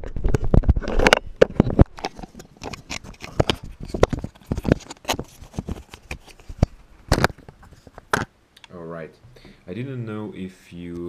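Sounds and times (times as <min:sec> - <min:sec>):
handling clicks and scrapes on camera housing: 0:00.0 - 0:08.3.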